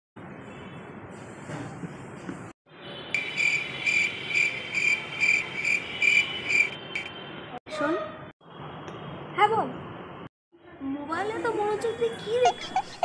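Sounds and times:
cricket chirping: 3.2 - 7.1.

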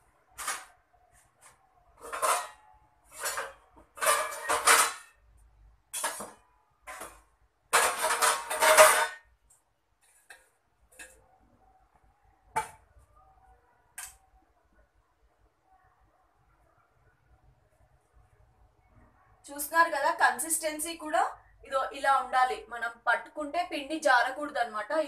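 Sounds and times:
steel utensils clattering: 2.0 - 5.2, 5.9 - 9.3.

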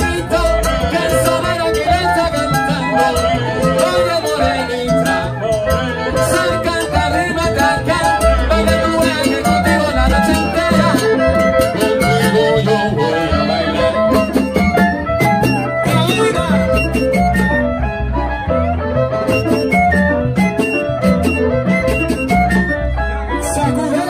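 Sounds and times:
held melody notes: 0.0 - 24.0
repeating bass line: 0.0 - 24.0
salsa band playing: 0.0 - 24.0
percussion strikes: 13.4 - 17.7.

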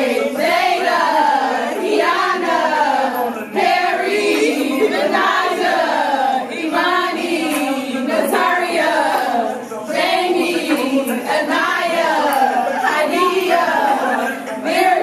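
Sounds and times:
girls chanting in unison: 0.0 - 10.4.

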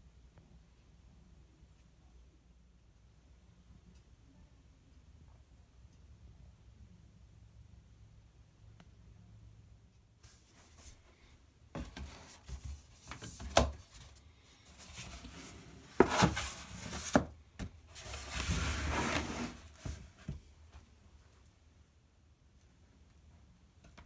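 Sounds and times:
cardboard rustling and scraping: 11.8 - 17.3, 17.9 - 20.4.

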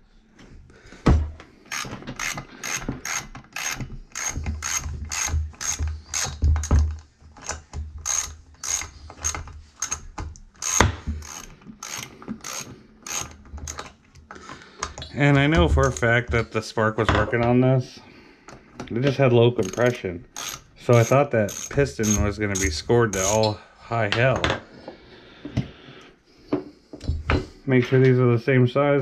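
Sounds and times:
ratchet wrench clicking: 1.7 - 6.8, 7.4 - 13.9, 19.6 - 23.5.

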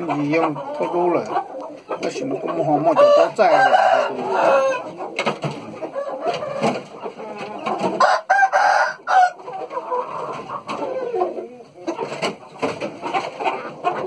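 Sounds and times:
chickens clucking: 0.0 - 14.0
rooster crowing: 3.0 - 4.8, 8.0 - 9.4.

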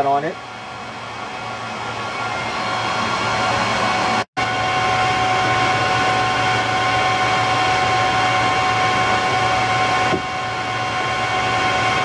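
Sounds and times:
cooling fans whirring: 0.0 - 12.0
whining tones: 0.4 - 12.0.

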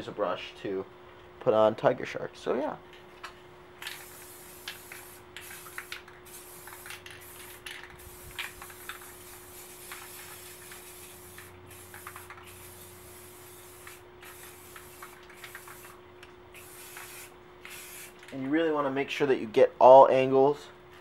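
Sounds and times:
aerosol can spraying: 3.8 - 16.0, 16.6 - 18.2.

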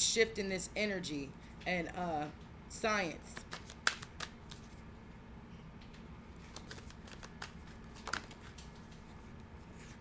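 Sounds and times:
cards being shuffled: 3.3 - 4.8, 6.4 - 10.0
card snap: 3.4 - 4.6.

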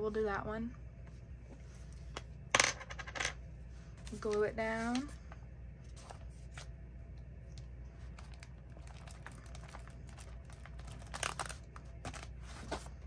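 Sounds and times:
paper rustling: 5.8 - 6.7, 8.0 - 13.0.

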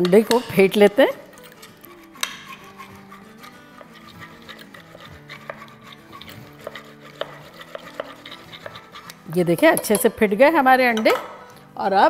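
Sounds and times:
soft background music: 0.0 - 12.0
whisk beating eggs in bowl: 1.2 - 10.0.

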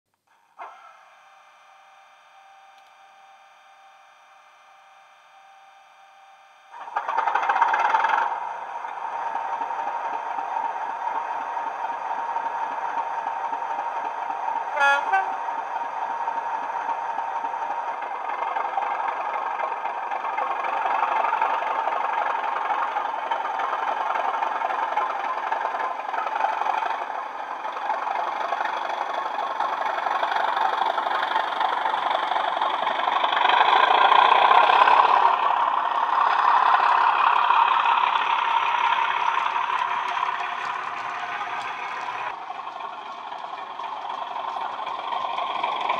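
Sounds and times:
diesel engine running: 0.2 - 45.9
locomotive horn blast: 14.7 - 15.7.

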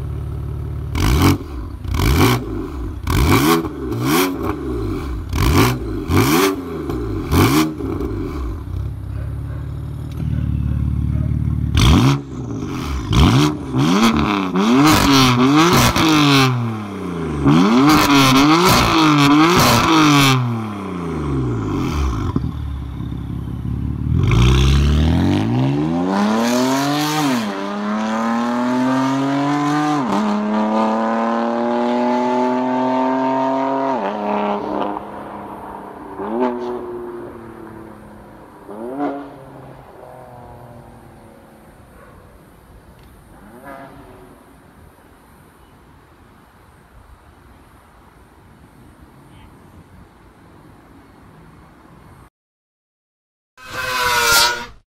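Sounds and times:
car engine revving: 0.8 - 9.0, 11.6 - 41.8
car accelerating with upshifts: 11.7 - 42.1.

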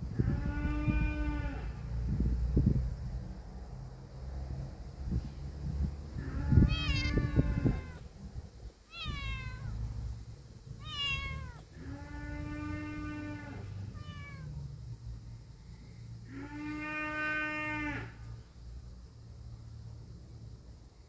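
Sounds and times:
wind rumble on microphone: 0.0 - 15.5
kitten meowing: 6.6 - 8.0, 8.9 - 9.8, 10.8 - 11.6, 14.0 - 14.5.

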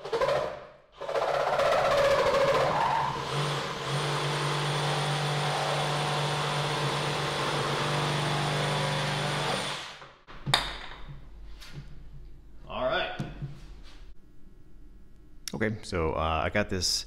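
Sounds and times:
reciprocating saw cutting wood: 0.0 - 10.0.

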